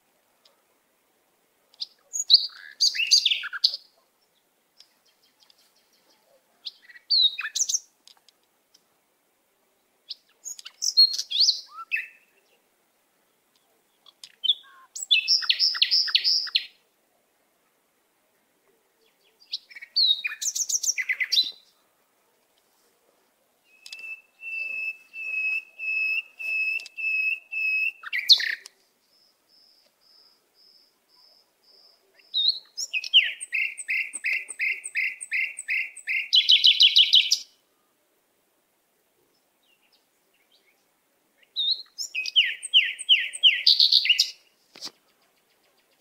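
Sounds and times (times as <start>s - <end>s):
songbird whistling: 2.1s - 3.7s, 10.4s - 12.2s, 14.5s - 16.7s, 23.6s - 28.7s, 32.3s - 37.5s, 41.6s - 44.4s.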